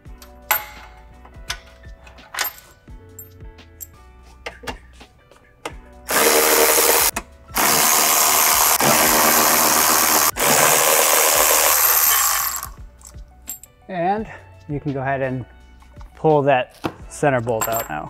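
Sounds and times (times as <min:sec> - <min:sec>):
electric ratchet spinning: 0:06.1 - 0:12.8.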